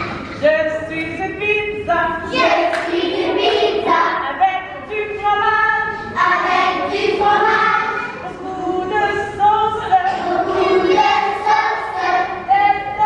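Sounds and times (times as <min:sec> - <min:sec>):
children singing: 0:02.3 - 0:04.2, 0:06.1 - 0:09.2, 0:10.0 - 0:13.0.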